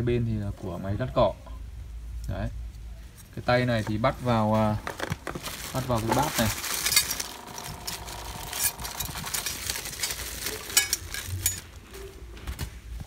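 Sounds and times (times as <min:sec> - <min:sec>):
plastic bags crinkling: 0:03.7 - 0:13.0
parts clicking and knocking: 0:04.6 - 0:13.0.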